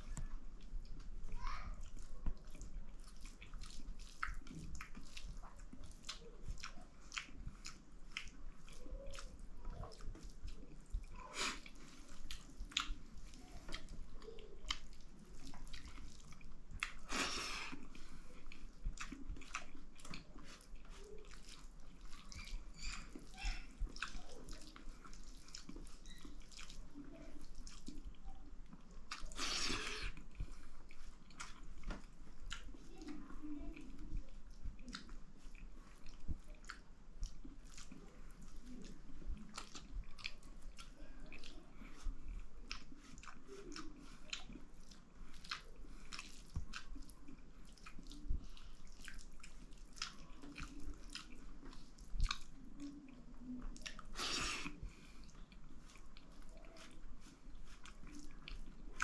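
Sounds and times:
wet chewing: 0:00.0 - 0:59.0
lip smacks and mouth clicks: 0:01.9 - 0:59.0.

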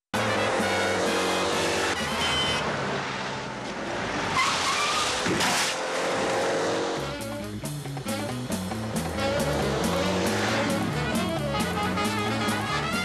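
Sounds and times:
film music soundtrack: 0:00.2 - 0:03.6, 0:05.9 - 0:13.0
tyre squeal: 0:02.0 - 0:02.6, 0:04.3 - 0:05.8
car crashing through bushes: 0:03.8 - 0:06.3.

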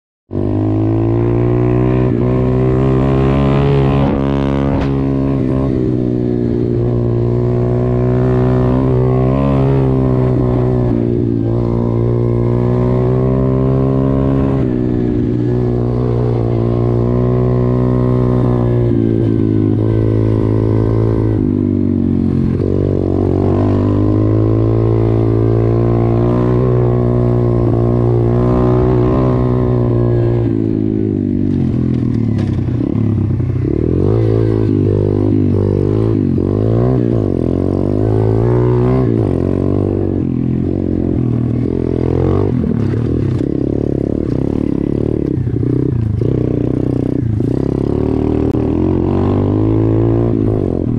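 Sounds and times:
motorbike engine running: 0:00.3 - 0:50.9.

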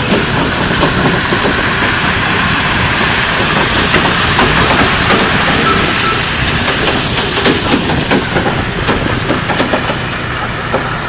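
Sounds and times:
sharp clicks and knocks: 0:00.0 - 0:01.8, 0:03.4 - 0:10.1, 0:10.7 - 0:11.0
trailers rolling on gravel: 0:00.0 - 0:11.0.

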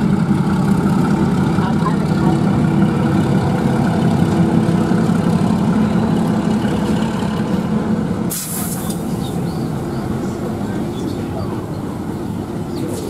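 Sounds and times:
diesel engine rumbling: 0:00.0 - 0:13.0
hissing air burst: 0:08.3 - 0:09.3.

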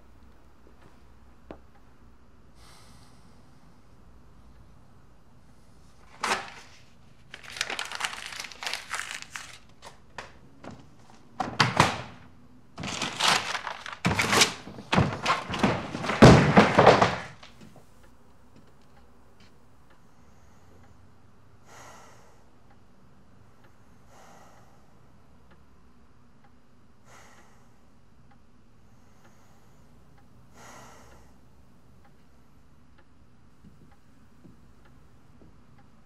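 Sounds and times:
paper tearing and rustling: 0:06.1 - 0:10.0, 0:12.8 - 0:17.5
heavy thud: 0:14.9 - 0:17.4.

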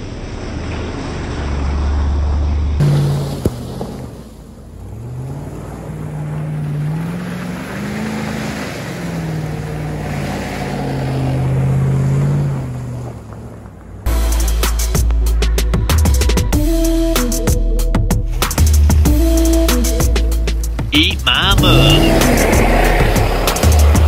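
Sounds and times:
engine driving through mud: 0:00.0 - 0:16.6, 0:18.2 - 0:24.0
music with heavy beat: 0:14.1 - 0:24.0.

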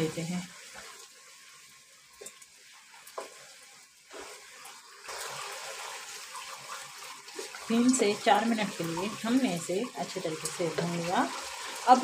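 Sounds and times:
masala sizzling in oil: 0:00.0 - 0:12.0
spatula scraping wok: 0:03.1 - 0:04.6.

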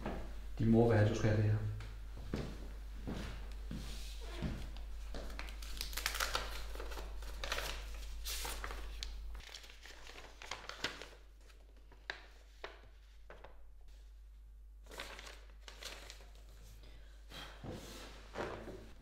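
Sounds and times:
paper crinkling and rustling: 0:04.6 - 0:13.7, 0:14.8 - 0:16.8
sharp paper crackles: 0:05.1 - 0:13.6, 0:14.8 - 0:16.6.

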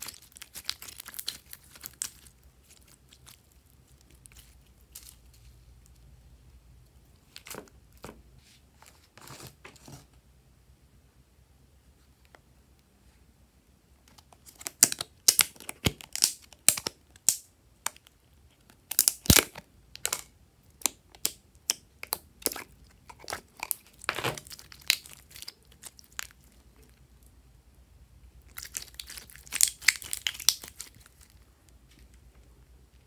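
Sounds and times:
plastic tub crinkling: 0:00.0 - 0:05.6, 0:22.0 - 0:27.0, 0:28.5 - 0:32.2
slime clicking and popping: 0:14.6 - 0:18.1, 0:18.8 - 0:26.3, 0:28.6 - 0:31.0.

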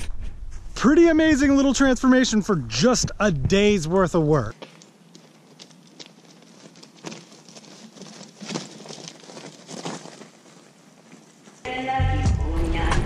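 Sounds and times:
bike tyres rolling over gravel: 0:04.4 - 0:11.7.

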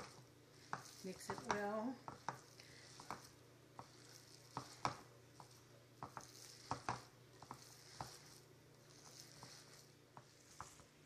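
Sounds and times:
hand squishing food in bowl: 0:00.0 - 0:11.0.

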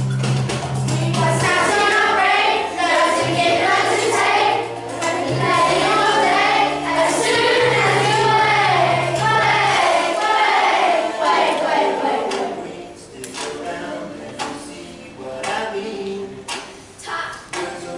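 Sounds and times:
children singing: 0:00.9 - 0:14.8.

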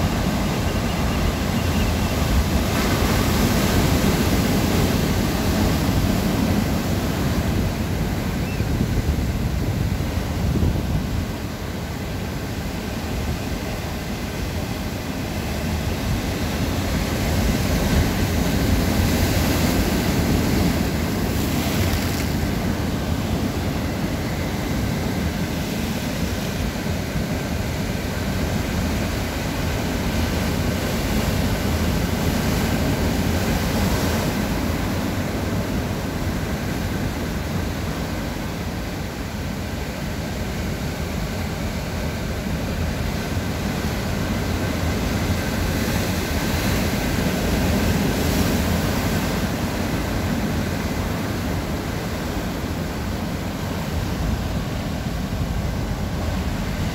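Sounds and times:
surf breaking over rocks: 0:17.3 - 0:24.4.

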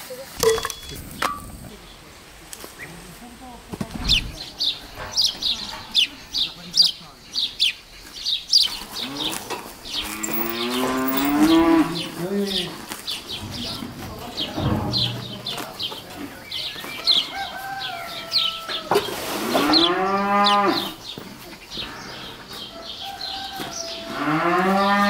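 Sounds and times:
birds chirping: 0:00.0 - 0:25.0
cow mooing: 0:09.0 - 0:12.2, 0:24.0 - 0:25.0.

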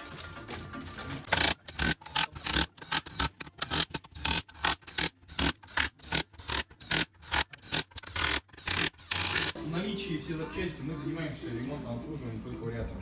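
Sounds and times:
impact wrench bursts: 0:01.3 - 0:09.6.

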